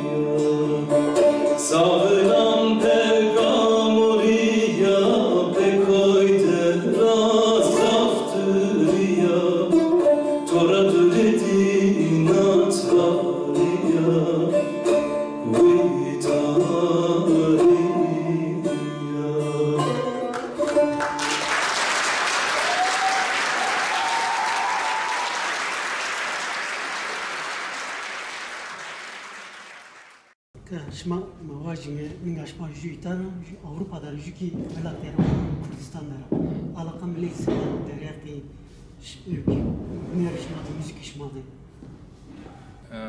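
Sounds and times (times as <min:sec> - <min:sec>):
man singing: 0:00.0 - 0:20.6
plucked long-necked lute: 0:00.1 - 0:03.0, 0:07.6 - 0:21.2
audience applause: 0:20.7 - 0:30.3.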